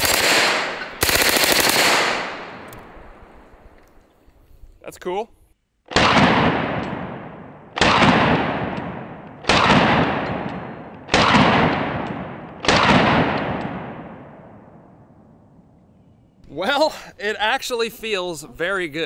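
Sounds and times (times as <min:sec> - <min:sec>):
pistol shots with echo: 0:00.0 - 0:03.0, 0:05.9 - 0:14.8.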